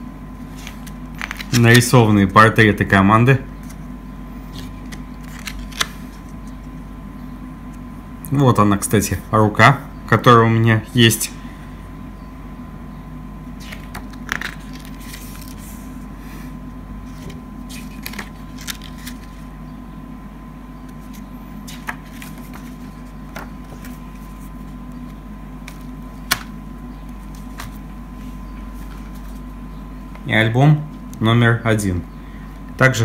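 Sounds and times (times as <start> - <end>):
steady low hum: 0.0 - 33.0
paper booklet rustling: 0.4 - 2.0, 4.5 - 6.8, 13.6 - 16.1, 17.0 - 19.5, 20.9 - 29.5.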